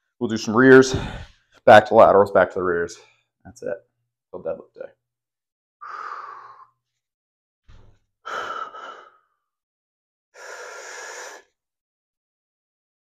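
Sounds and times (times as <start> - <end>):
man exhaling hard: 0.9 - 1.3.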